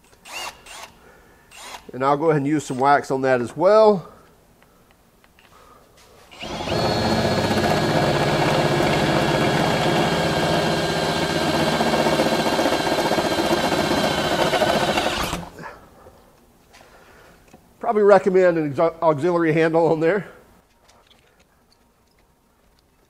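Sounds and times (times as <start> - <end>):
drill whining into steel: 0.2 - 1.9, 6.3 - 15.6.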